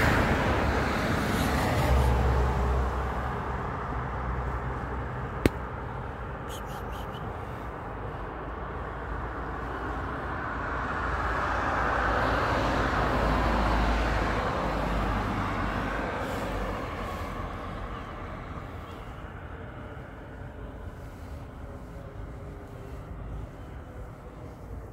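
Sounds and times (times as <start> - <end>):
car passing by: 9.5 - 20.4.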